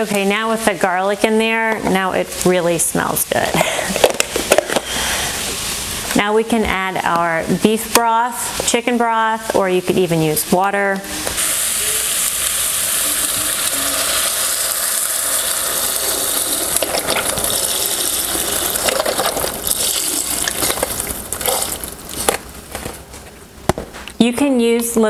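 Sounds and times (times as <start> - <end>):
broth pouring into a pot: 11.4 - 22.3.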